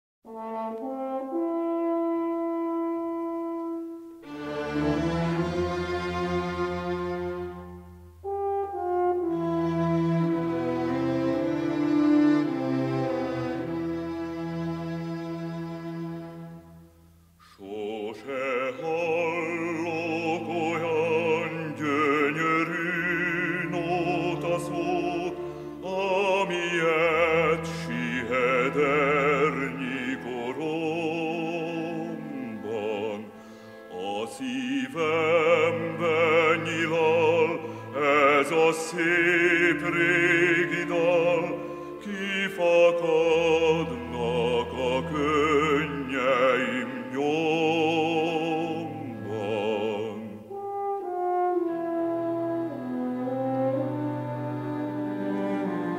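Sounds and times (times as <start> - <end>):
operatic voice singing: 17.4 - 50.6.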